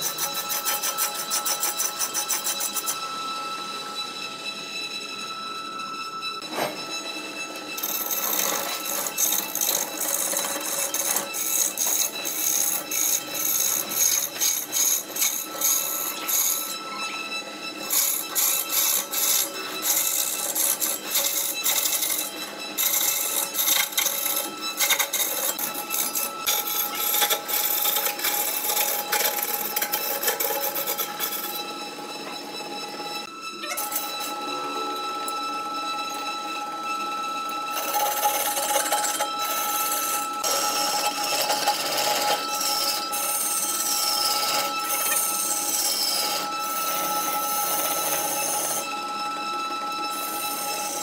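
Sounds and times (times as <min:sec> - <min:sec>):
turning tool scraping wood: 0:00.0 - 0:03.0, 0:07.8 - 0:16.8, 0:17.7 - 0:31.7, 0:37.6 - 0:49.0
wood lathe whining: 0:00.0 - 0:51.0.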